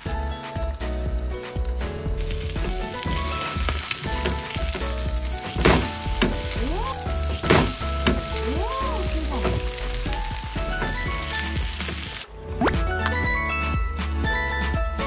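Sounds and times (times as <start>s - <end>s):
pancake sizzling in hot oil: 0.0s - 12.3s
spatula slaps: 7.4s - 8.4s.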